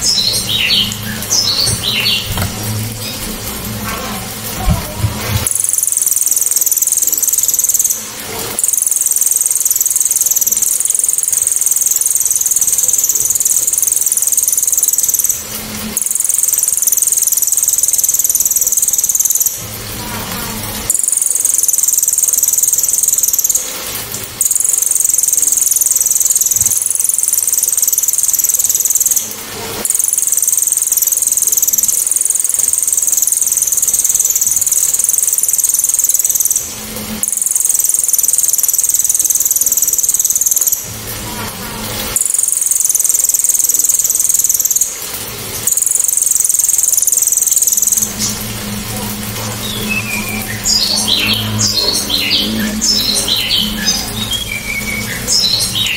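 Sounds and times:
low hum: 0.0s - 5.8s
jay rattling trills: 0.0s - 15.4s, 24.8s - 55.9s.

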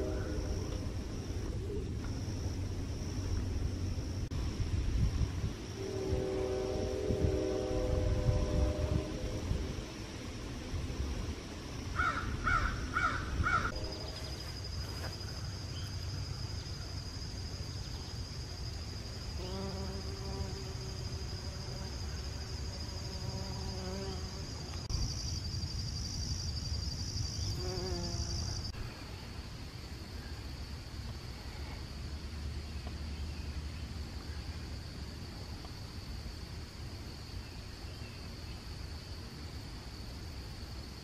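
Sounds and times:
insect trilling chorus: 11.8s - 28.8s
short harsh insect calls: 11.9s - 29.3s.

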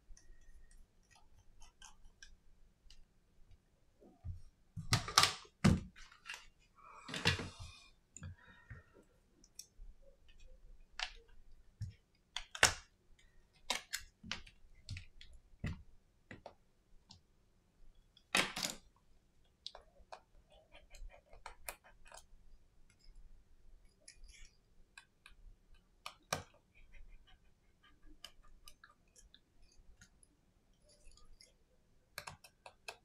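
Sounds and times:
small clicks and taps: 31.0s - 33.0s.

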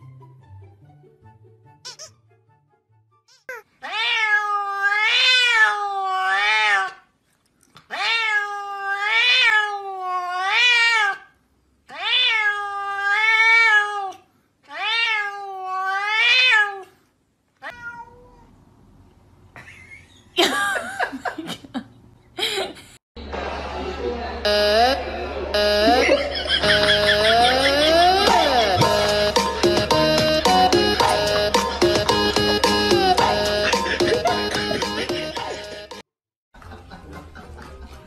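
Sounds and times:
cat meowing: 3.5s - 7.0s, 7.9s - 11.3s, 11.9s - 16.9s, 17.6s - 18.5s
short high cat cries: 3.5s - 7.0s.

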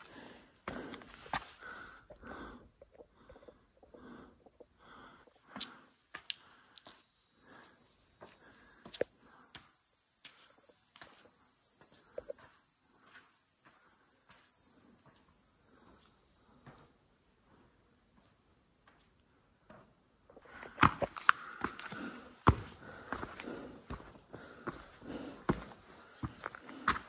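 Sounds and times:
high-pitched insect chorus: 0.0s - 18.0s, 20.5s - 27.0s.

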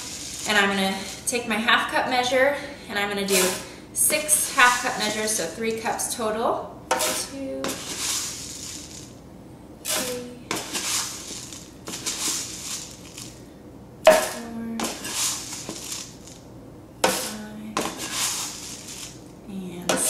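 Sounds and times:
oats pouring into jar: 0.0s - 0.6s, 7.8s - 9.1s, 10.6s - 13.3s, 14.9s - 16.4s, 18.0s - 19.2s.

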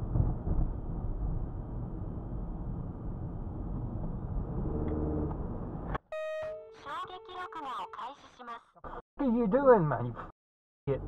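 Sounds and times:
car engine and tyre rumble: 0.0s - 6.0s.

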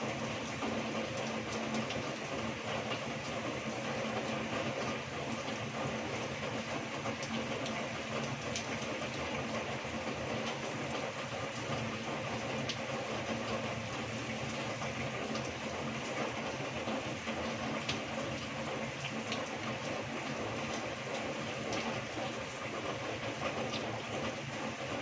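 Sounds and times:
heavy rain falling: 0.0s - 25.0s
rain running off a roof: 0.0s - 25.0s.

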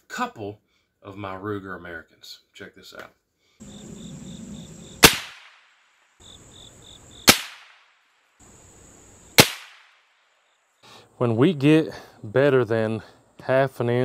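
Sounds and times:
insects chirping: 3.6s - 11.4s
rifle shots: 5.0s - 5.7s, 7.2s - 7.9s, 9.4s - 10.0s.

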